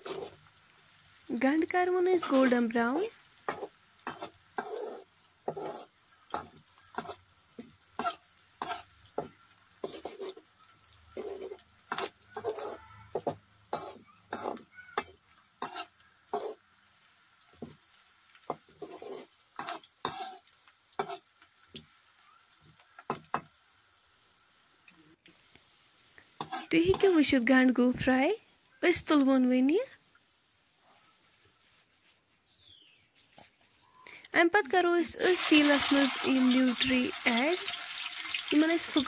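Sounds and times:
metal spatula scraping pan: 0.0 - 0.4, 3.5 - 10.5, 11.1 - 16.6, 18.5 - 21.3, 26.4 - 27.2
onions sizzling in oil: 0.0 - 33.0, 34.1 - 39.0.

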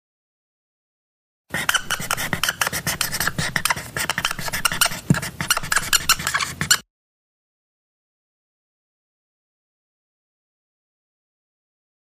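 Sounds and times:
marker scratching on whiteboard: 1.5 - 6.8.

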